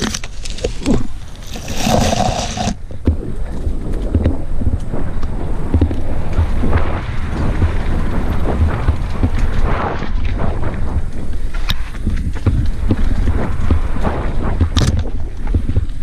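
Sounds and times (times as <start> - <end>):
tyres on loose soil: 0.0 - 16.0
wind noise on microphone: 0.0 - 16.0
bike knocking and rattling: 5.6 - 16.0.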